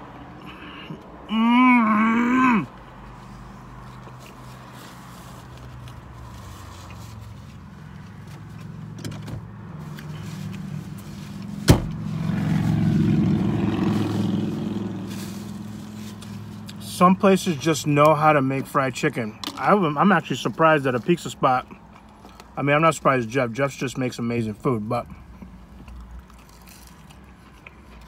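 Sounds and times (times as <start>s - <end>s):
car engine drone: 0.0s - 28.0s
person humming: 1.3s - 2.7s
faint chewing: 21.6s - 22.6s, 25.1s - 28.0s.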